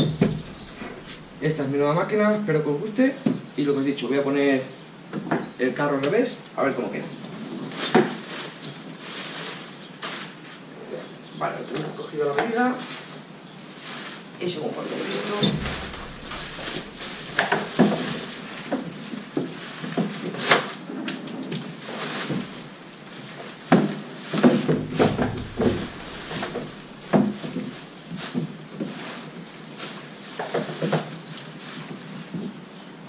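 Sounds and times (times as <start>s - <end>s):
clunks and knocks on plastic hull: 0.0s - 1.4s, 15.4s - 17.6s, 24.7s - 27.7s.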